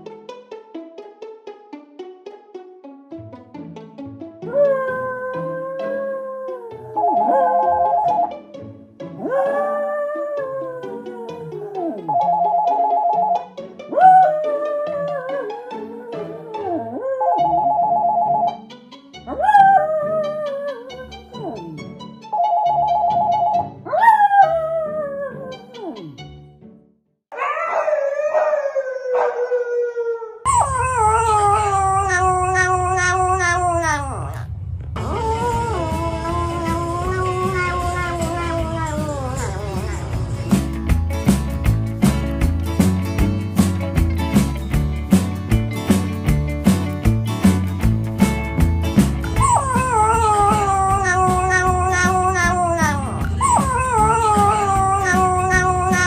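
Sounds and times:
dog long falling howl: 0:04.5 - 0:08.1, 0:09.2 - 0:12.1, 0:13.9 - 0:17.5, 0:19.3 - 0:21.4, 0:23.9 - 0:25.7, 0:27.3 - 0:40.2, 0:49.4 - 0:56.0
small dog wavering howl: 0:04.5 - 0:08.2, 0:13.9 - 0:18.2, 0:27.3 - 0:34.4, 0:35.0 - 0:39.9, 0:49.4 - 0:56.0
background music with steady beat: 0:35.6 - 0:56.0.

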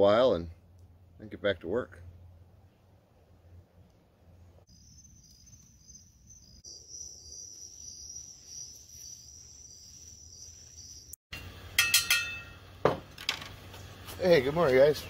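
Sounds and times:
crickets chirping: 0:04.6 - 0:11.2
sharp clinks: 0:11.4 - 0:12.6.

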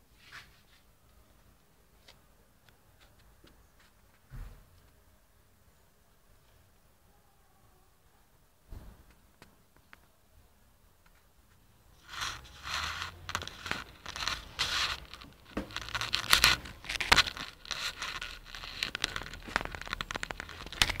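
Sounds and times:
handling noise on microphone: 0:11.0 - 0:21.0.

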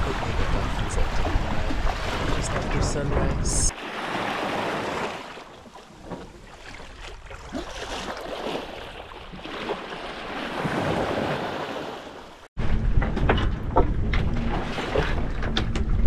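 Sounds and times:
wind on microphone: 0:00.0 - 0:03.7
water splashing along boat hull: 0:00.0 - 0:16.0.

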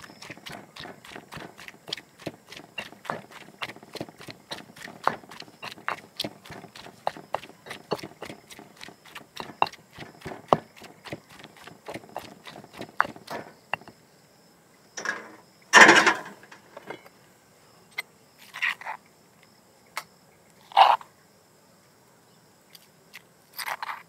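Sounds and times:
pestle pounding in stone mortar: 0:00.0 - 0:14.0
pestle scraping mortar: 0:00.0 - 0:14.0.

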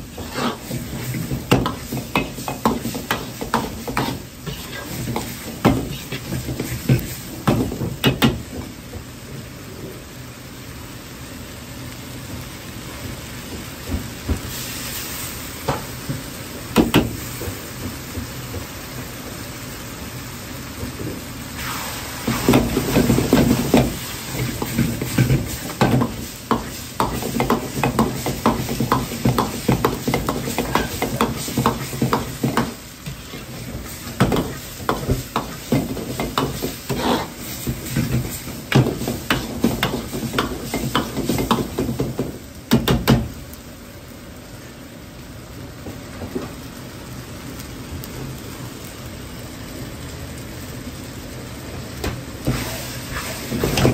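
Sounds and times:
meat sauce sizzling in a wok: 0:00.0 - 0:53.9
metal ladle scraping a wok: 0:00.2 - 0:01.9, 0:36.4 - 0:37.4.

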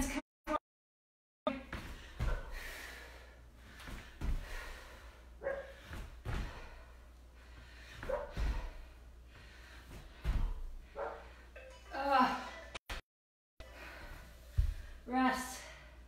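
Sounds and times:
bare feet landing with thuds: 0:01.6 - 0:03.0, 0:03.6 - 0:07.0, 0:07.6 - 0:11.0, 0:14.5 - 0:15.0.

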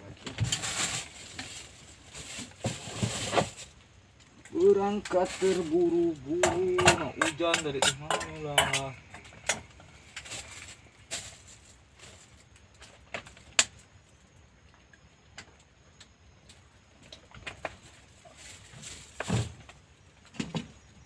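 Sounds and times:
cooking pot and utensils clinking: 0:06.4 - 0:09.6.

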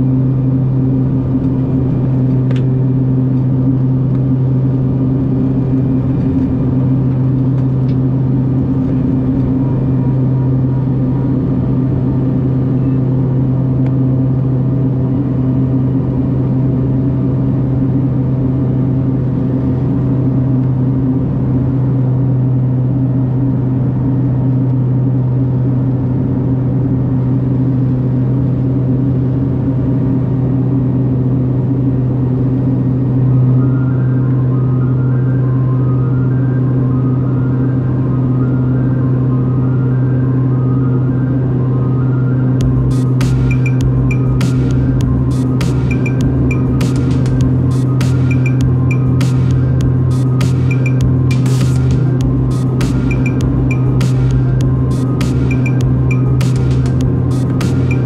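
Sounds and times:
propeller drone: 0:00.0 - 0:58.0
rush of engine and air noise: 0:00.0 - 0:58.0
higher hum: 0:42.6 - 0:58.0.

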